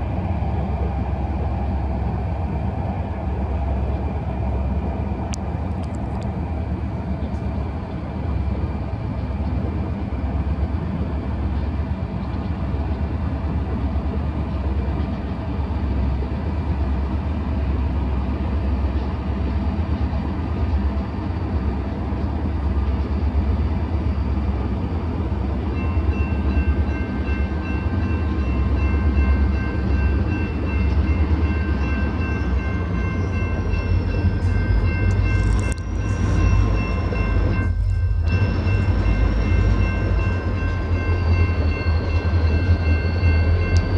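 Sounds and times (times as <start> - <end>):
diesel locomotives rumbling: 0.0 - 43.9
crossing warning bell ringing: 24.1 - 43.9.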